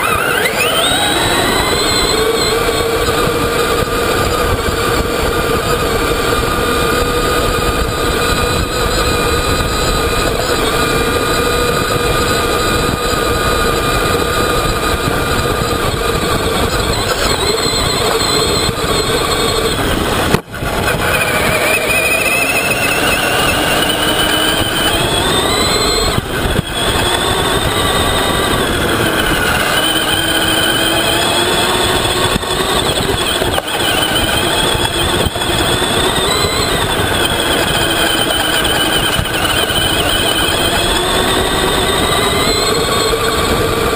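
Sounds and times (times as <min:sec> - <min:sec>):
rc truck motor whining: 0:00.0 - 0:43.9.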